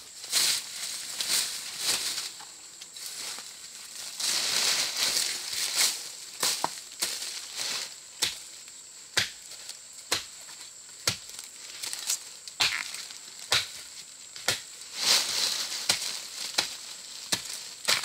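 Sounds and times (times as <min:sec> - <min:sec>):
blade chopping bamboo: 0:09.2 - 0:09.4, 0:10.1 - 0:10.4, 0:12.0 - 0:13.8, 0:14.4 - 0:14.7, 0:15.8 - 0:18.0.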